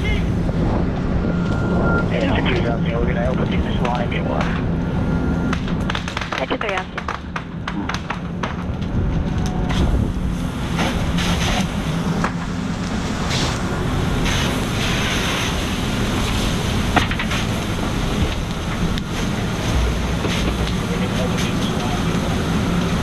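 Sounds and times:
low engine drone: 0:00.0 - 0:23.0
fire hose spraying water: 0:09.8 - 0:23.0.

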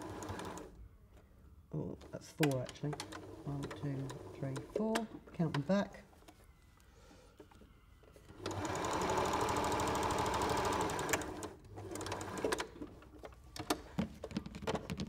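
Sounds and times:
sewing machine stitching: 0:08.4 - 0:12.9.

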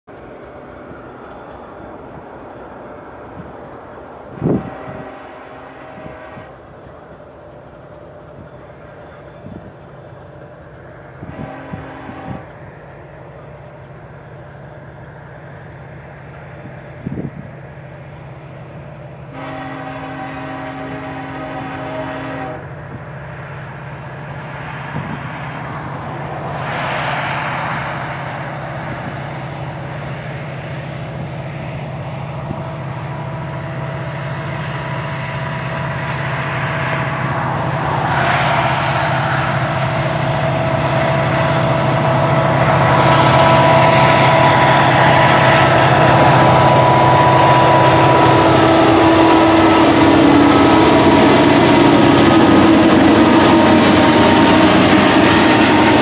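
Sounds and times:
locomotive engine drone: 0:00.1 - 0:56.0
rail rumble: 0:00.1 - 0:56.0
train horn blast: 0:04.3 - 0:06.6, 0:11.2 - 0:12.6, 0:19.3 - 0:22.8, 0:37.8 - 0:56.0.

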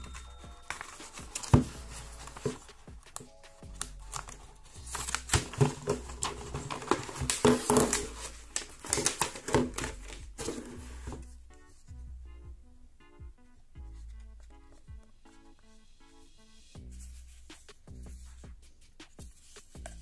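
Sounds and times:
packaging clicks and taps: 0:00.0 - 0:11.3.

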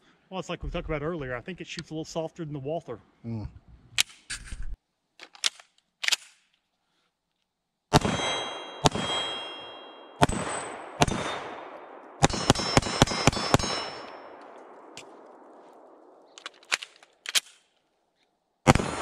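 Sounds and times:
pistol shots: 0:07.9 - 0:17.5, 0:18.7 - 0:19.0
steel target ringing: 0:08.0 - 0:14.4.

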